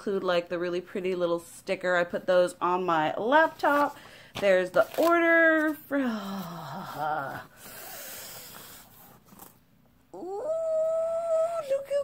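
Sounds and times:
paper packaging rustling: 3.4s - 5.9s
woman's long high ooh: 10.1s - 12.0s.

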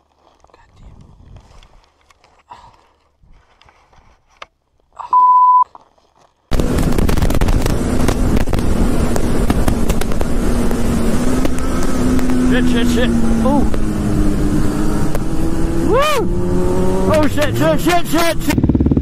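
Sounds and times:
wind buffeting on camera: 0.7s - 1.9s, 6.5s - 17.6s
motorcycle engine drone: 6.5s - 19.0s.

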